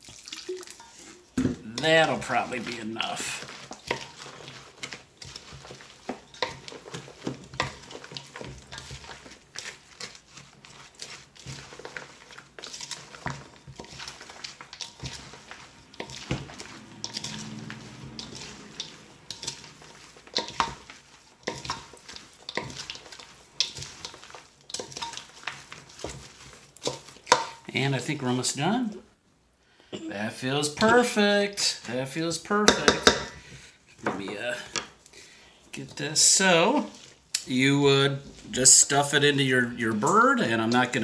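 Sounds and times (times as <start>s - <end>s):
spoon stirring stuffing: 0.0s - 41.0s
spoon scraping metal bowl: 0.7s - 27.6s.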